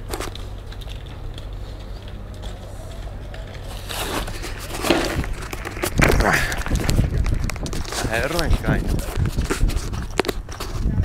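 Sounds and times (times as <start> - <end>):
low hum: 0.0 - 8.6
people's voices: 1.5 - 9.5.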